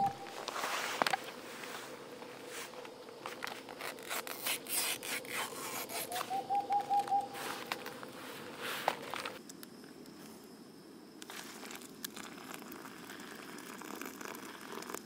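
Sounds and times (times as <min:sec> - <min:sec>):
tent fabric rustling: 0:00.0 - 0:06.3, 0:07.4 - 0:09.4.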